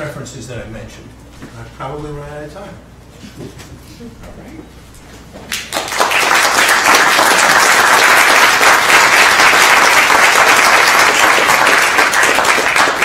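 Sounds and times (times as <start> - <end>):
audience applauding: 5.5 - 13.0.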